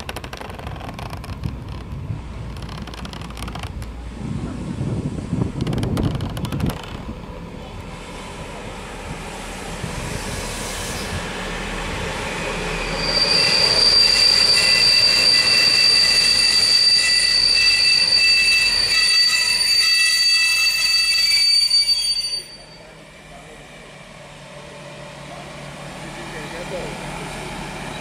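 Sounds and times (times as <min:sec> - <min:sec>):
diesel train rolling: 0:00.0 - 0:28.0
wheels squealing: 0:12.7 - 0:23.0.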